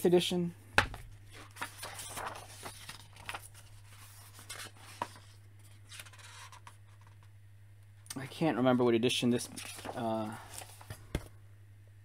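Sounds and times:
book pages rustling: 0:01.1 - 0:07.3, 0:09.4 - 0:11.4.

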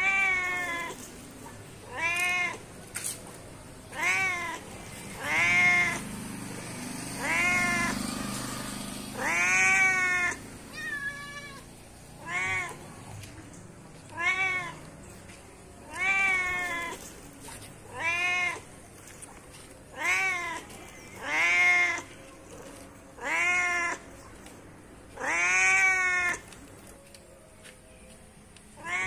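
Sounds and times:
cat meowing: 0:00.0 - 0:01.0, 0:01.8 - 0:02.6, 0:03.9 - 0:06.0, 0:07.2 - 0:08.0, 0:09.1 - 0:13.2, 0:14.1 - 0:14.9, 0:15.8 - 0:17.1, 0:17.8 - 0:18.7, 0:19.9 - 0:22.1, 0:23.2 - 0:24.0, 0:25.2 - 0:26.5, 0:28.8 - 0:29.0.

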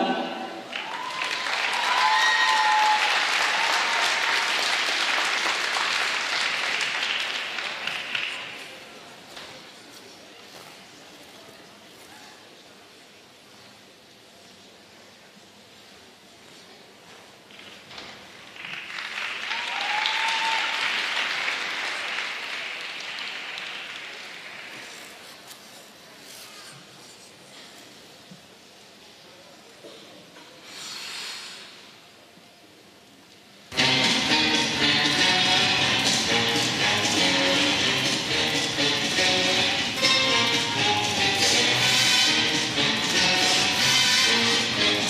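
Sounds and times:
audience applauding: 0:00.7 - 0:08.8, 0:18.5 - 0:25.1.

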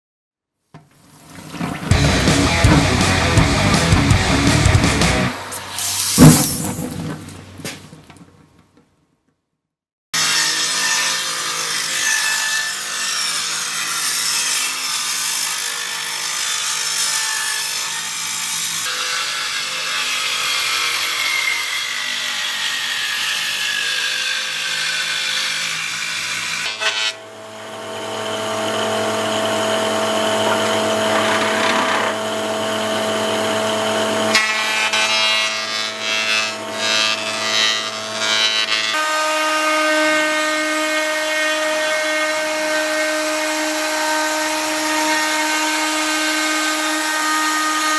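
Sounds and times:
table saw ripping a board: 0:01.0 - 0:08.0, 0:10.2 - 0:47.9
planer running: 0:01.9 - 0:05.5, 0:27.4 - 0:34.4.

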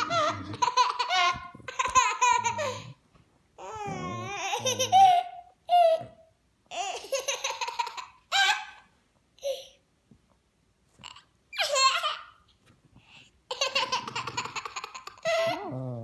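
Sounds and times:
toddler laughing and squealing: 0:13.5 - 0:15.7.

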